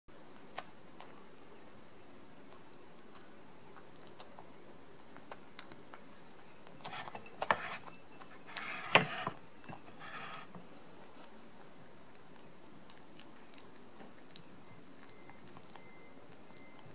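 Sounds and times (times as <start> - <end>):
cat chewing and licking: 0.2 - 16.9
clinking against ceramic bowl: 6.8 - 10.0.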